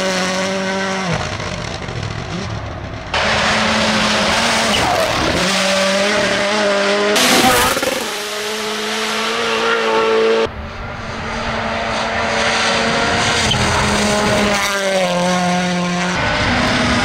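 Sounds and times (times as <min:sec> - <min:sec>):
rally car engine at full throttle: 0:00.0 - 0:17.0.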